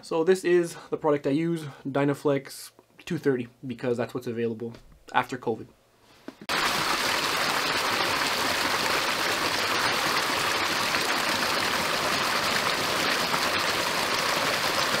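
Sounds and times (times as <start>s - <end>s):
stream splashing over a drop: 6.5s - 15.0s.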